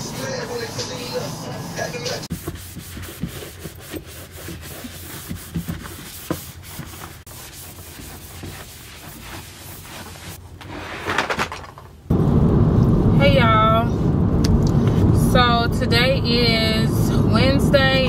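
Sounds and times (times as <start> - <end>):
rubbing and rustling: 2.2 - 11.9.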